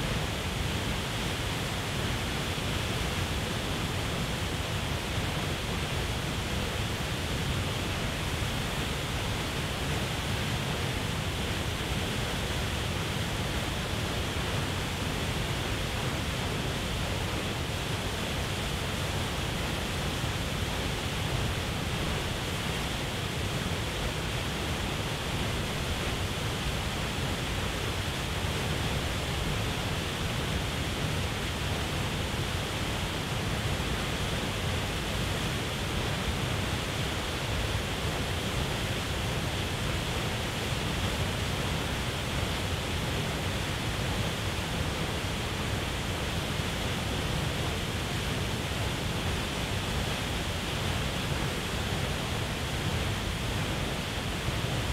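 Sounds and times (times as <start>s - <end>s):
waterfall rushing: 0.0s - 54.9s.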